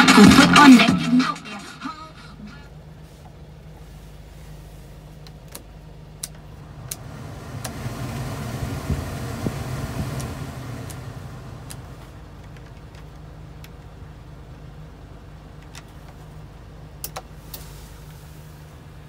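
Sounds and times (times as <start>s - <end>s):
diesel engine idling: 2.2s - 19.0s
heater blower fan rushing air: 2.8s - 15.2s
fan-speed dial clicks: 5.2s - 13.9s.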